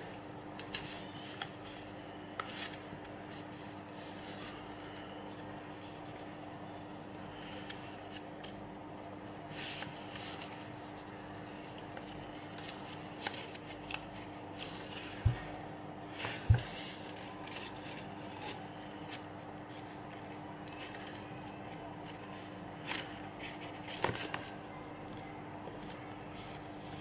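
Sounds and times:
faint steady hum: 0.0s - 27.0s
paper rustling and crinkling: 0.6s - 6.3s, 9.5s - 10.7s, 11.4s - 15.5s, 16.1s - 24.7s.

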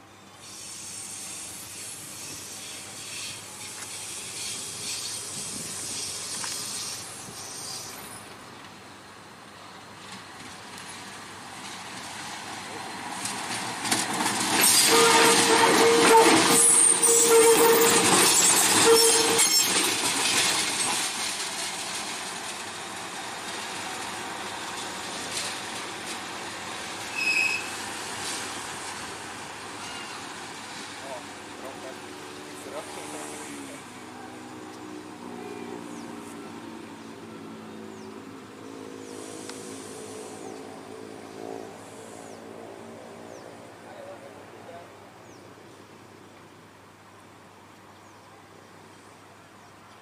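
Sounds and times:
wheel squeal: 0.4s - 8.3s, 14.6s - 20.5s, 27.1s - 27.8s, 29.8s - 30.3s
locomotive running noise: 1.2s - 37.5s
locomotive horn: 14.6s - 19.7s.

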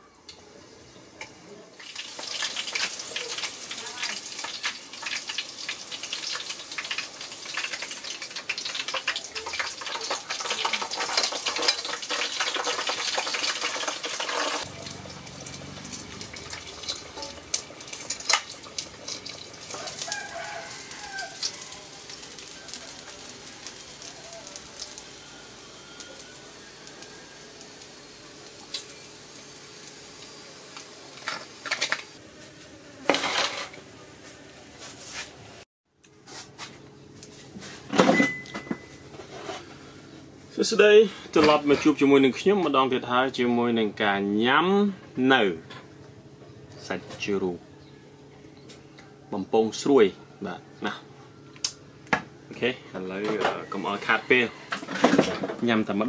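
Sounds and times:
meat deep-frying in oil: 0.0s - 32.2s.

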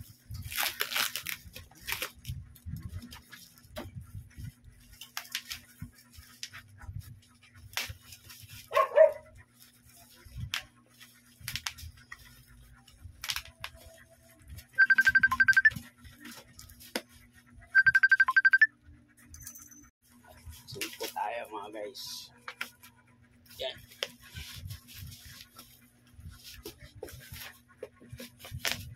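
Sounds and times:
plastic wrapping crinkling: 0.4s - 2.3s.

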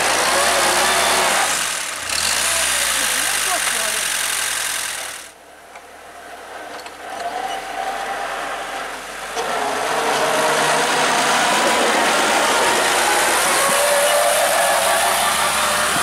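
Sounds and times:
tractor engine running: 0.0s - 5.4s, 9.0s - 16.0s.

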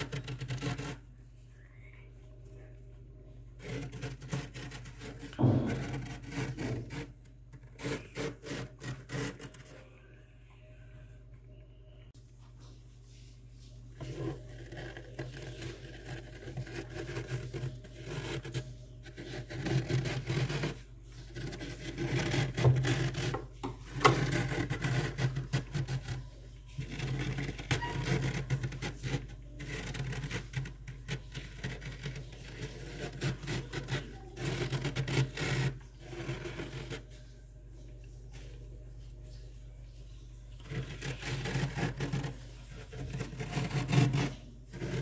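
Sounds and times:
hand scraping frost: 0.0s - 1.1s, 3.5s - 9.9s, 13.1s - 38.6s, 40.6s - 45.0s.

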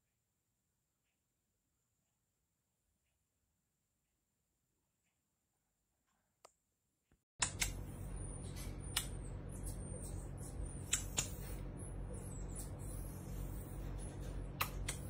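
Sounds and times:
sharp clicks: 7.4s - 7.8s, 8.9s - 9.8s, 10.8s - 11.5s
steady low hum: 7.4s - 15.0s
baby marmosets chirping: 7.8s - 15.0s.

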